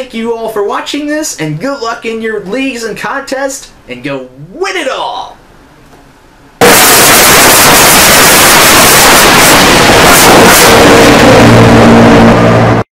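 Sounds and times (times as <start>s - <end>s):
racing car engines at speed: 9.3s - 12.8s.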